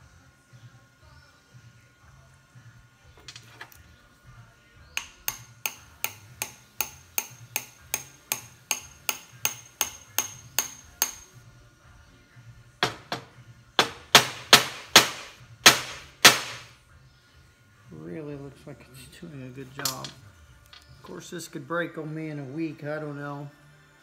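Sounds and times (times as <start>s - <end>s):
hammer tapping wedge: 5.0s - 11.2s
hard hammer blows: 12.8s - 16.7s.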